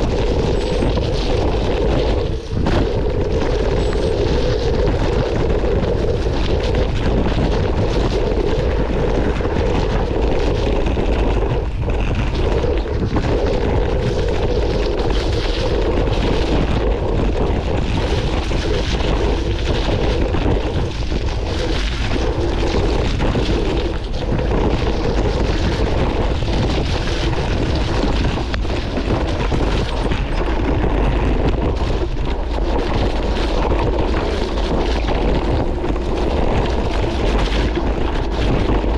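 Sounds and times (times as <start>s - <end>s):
bike rattling: 0.0s - 38.9s
tyres crunching over rocky track: 0.0s - 38.9s
wind buffeting microphone: 0.0s - 38.9s.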